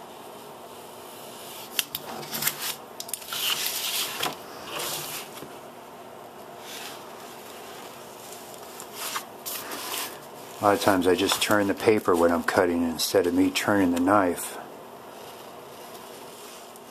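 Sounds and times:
folder rustling: 0:02.0 - 0:05.5.

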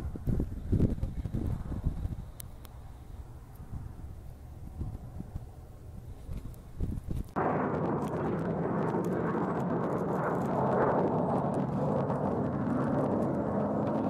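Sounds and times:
jet engines rushing: 0:07.4 - 0:14.0.

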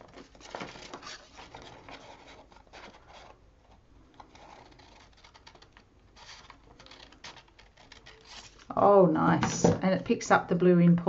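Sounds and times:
scissors snipping paper: 0:00.0 - 0:08.8
paper rustling: 0:00.0 - 0:08.9.

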